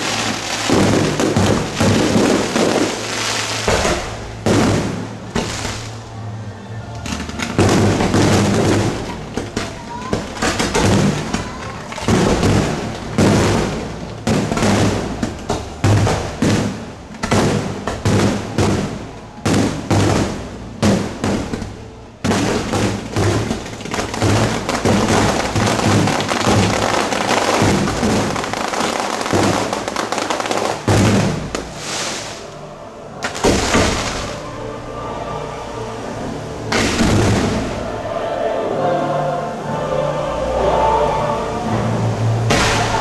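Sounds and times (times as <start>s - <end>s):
firework shells bursting: 0.0s - 6.0s, 7.1s - 32.6s, 33.2s - 34.4s.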